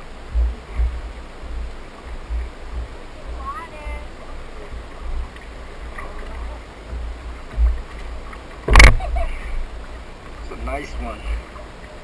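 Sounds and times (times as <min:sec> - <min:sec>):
wind buffeting microphone: 0:00.0 - 0:11.4
dull thump: 0:06.8 - 0:09.3
sharp knock: 0:08.7 - 0:09.0.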